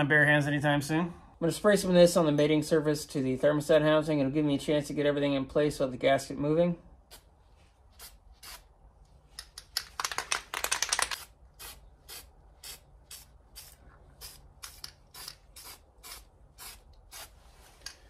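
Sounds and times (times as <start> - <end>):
aerosol can spraying: 11.1 - 17.9.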